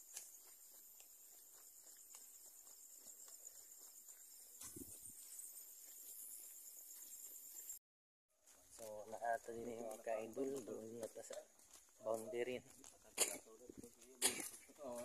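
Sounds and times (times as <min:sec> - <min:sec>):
crickets trilling: 0:00.0 - 0:07.8.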